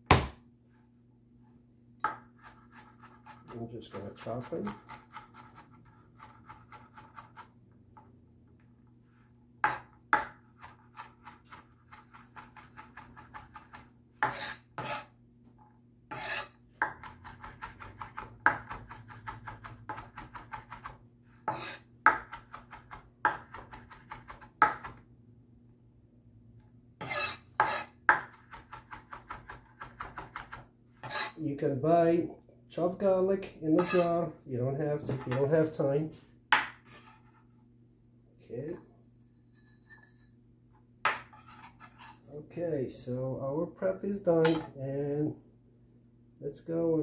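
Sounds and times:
knife chopping on cutting board: 0:00.1 - 0:00.4, 0:09.6 - 0:15.1, 0:16.1 - 0:25.0, 0:27.0 - 0:31.4, 0:36.5 - 0:37.2, 0:41.0 - 0:42.1.

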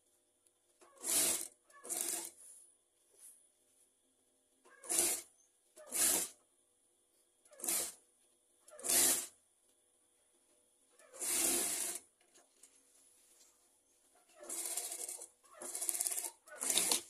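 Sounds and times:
sewing machine stitching: 0:00.8 - 0:02.4, 0:04.7 - 0:06.4, 0:07.5 - 0:08.0, 0:08.7 - 0:09.3, 0:11.1 - 0:12.0, 0:14.4 - 0:17.0.

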